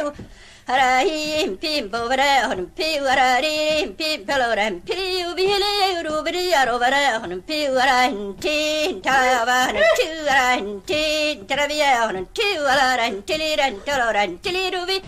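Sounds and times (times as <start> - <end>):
woman singing unaccompanied: 0.0 - 15.0.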